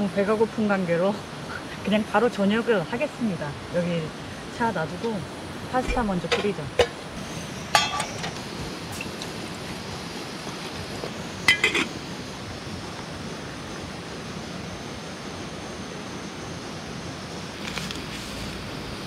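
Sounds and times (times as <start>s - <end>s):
gas stove hiss: 0.0s - 19.0s
cooking pot clinking: 6.2s - 7.0s, 7.7s - 8.4s, 11.5s - 11.9s
lid clink with metallic ring: 7.7s - 8.4s, 11.5s - 11.9s.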